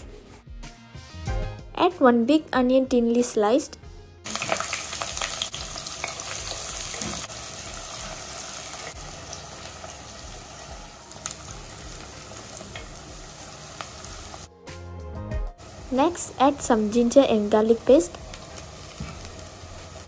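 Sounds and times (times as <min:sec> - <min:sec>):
onion sizzling in hot oil: 0:04.3 - 0:14.5, 0:15.6 - 0:20.0.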